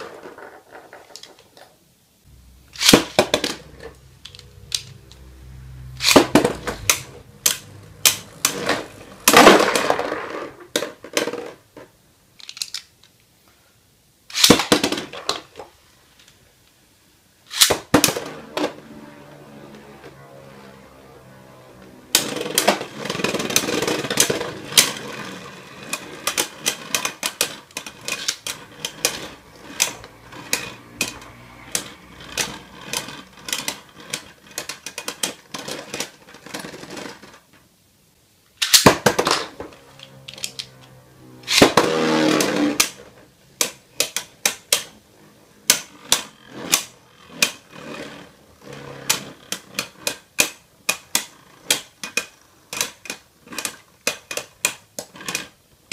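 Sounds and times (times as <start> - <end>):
spinning tops grinding: 2.4 - 11.5, 17.5 - 37.3, 38.6 - 55.9
spinning tops clashing: 2.7 - 5.0.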